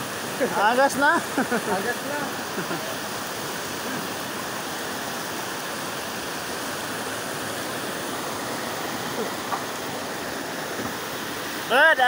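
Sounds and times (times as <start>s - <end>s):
river rushing over boulders: 0.0s - 12.0s.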